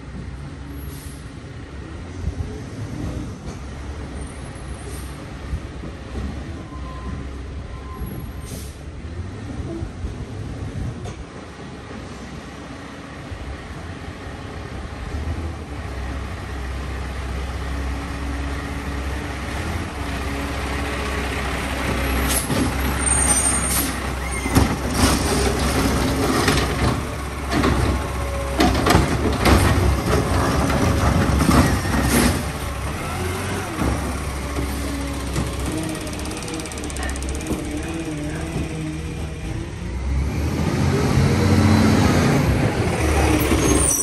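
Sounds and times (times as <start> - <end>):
garbage truck diesel engine running: 15.9 - 43.9.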